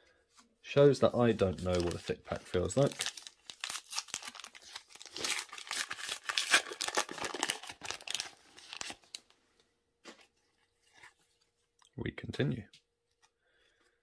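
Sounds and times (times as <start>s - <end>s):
plastic wrapper tearing and crinkling: 1.3s - 9.3s.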